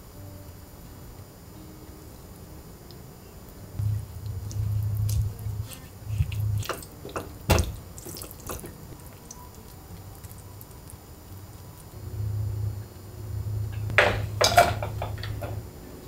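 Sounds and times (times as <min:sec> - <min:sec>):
low rumble: 0:03.8 - 0:06.8, 0:11.8 - 0:16.0
spatula stirring wet mixture in pan: 0:03.9 - 0:11.9.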